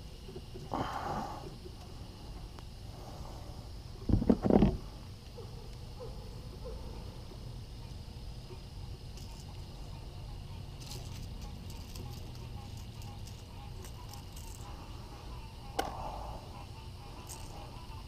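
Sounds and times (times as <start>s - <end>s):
faint insect hum: 0.0s - 18.0s
fishing pliers clicks and rattles: 10.8s - 14.7s.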